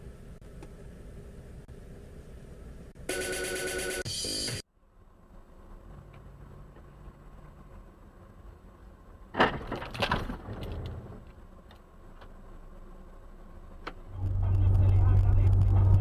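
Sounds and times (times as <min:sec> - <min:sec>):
car engine rumbling: 0:04.8 - 0:16.0
vehicle collision crash: 0:09.3 - 0:11.2.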